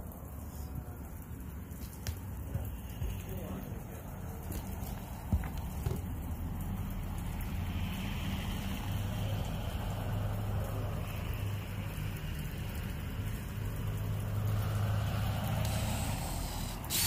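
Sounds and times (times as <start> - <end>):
background hiss: 6.7 - 17.0.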